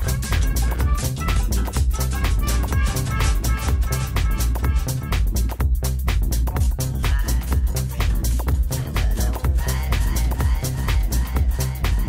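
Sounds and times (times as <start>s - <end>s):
electronic dance music: 0.0s - 12.0s.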